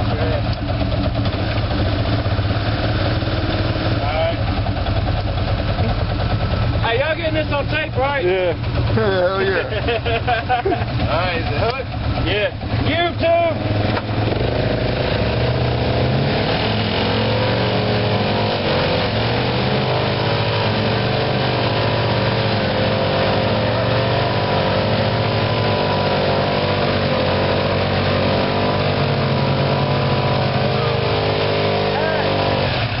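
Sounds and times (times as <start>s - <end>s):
atv engine running: 0.0s - 33.0s
pickup truck engine running: 0.0s - 33.0s.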